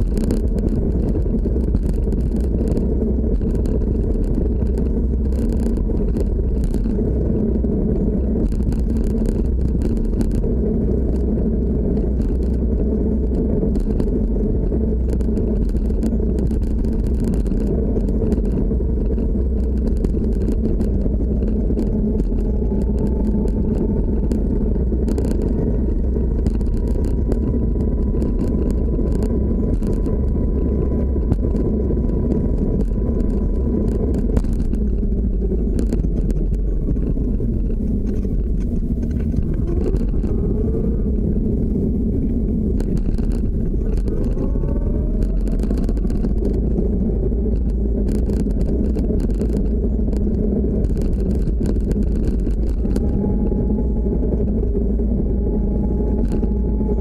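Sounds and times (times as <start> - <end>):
skateboard tyres rumbling: 0.0 - 57.0.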